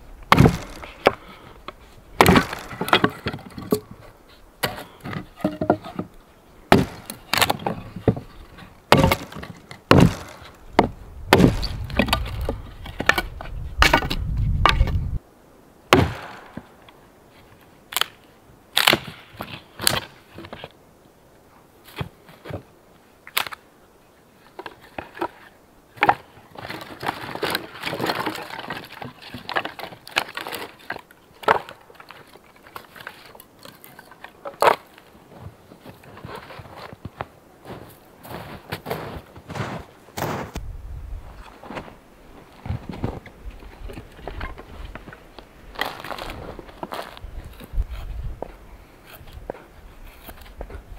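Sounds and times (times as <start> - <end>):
hatchet chopping kindling: 0.3 - 1.2, 2.2 - 4.0, 6.7 - 7.8, 8.9 - 13.2, 15.9 - 16.7
firewood sticks clattering: 0.3 - 6.1, 6.7 - 15.0.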